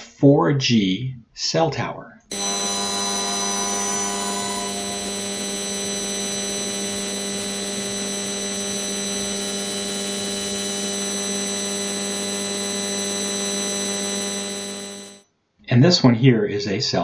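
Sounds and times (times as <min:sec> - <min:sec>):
buzzing hiss with low hum: 0:02.3 - 0:15.2.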